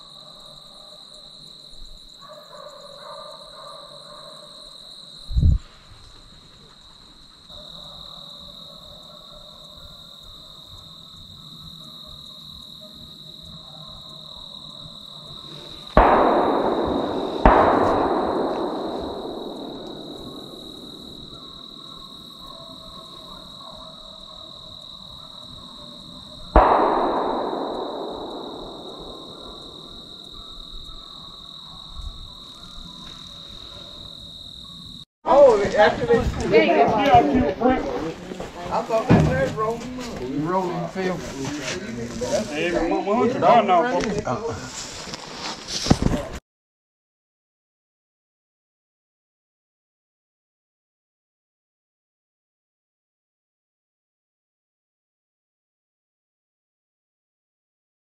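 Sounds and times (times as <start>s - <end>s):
echoing gunshots: 15.9s - 22.5s, 26.5s - 31.2s.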